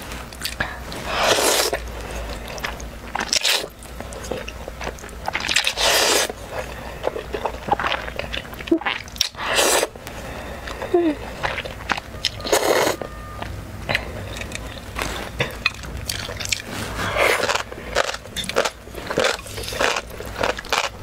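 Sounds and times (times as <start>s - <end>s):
noodles being slurped: 0.3s - 9.9s, 14.2s - 20.9s.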